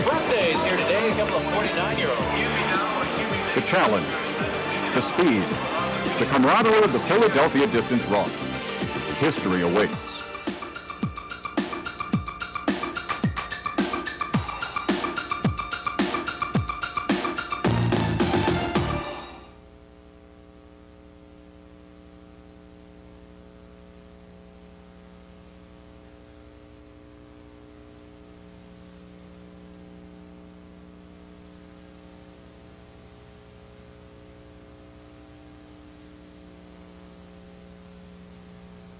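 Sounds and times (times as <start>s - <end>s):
closing music: 0.0s - 19.5s
electrical mains hum: 0.0s - 38.9s.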